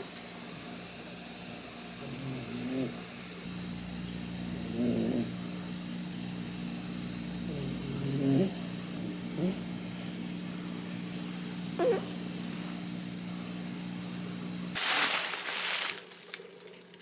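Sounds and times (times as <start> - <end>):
cat purring: 4.6 - 5.4, 7.4 - 9.7.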